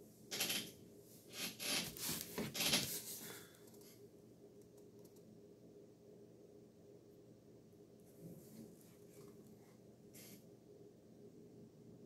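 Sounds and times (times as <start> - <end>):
book rustling and scraping: 1.3 - 3.4.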